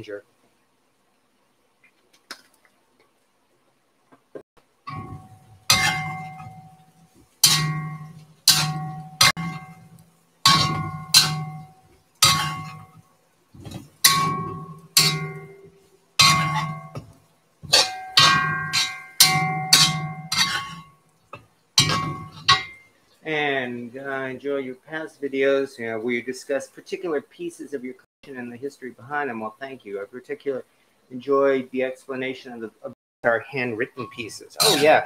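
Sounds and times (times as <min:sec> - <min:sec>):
metal utensil knocking on wok: 0:04.9 - 0:06.8, 0:07.4 - 0:13.0, 0:13.7 - 0:20.9, 0:21.8 - 0:22.8.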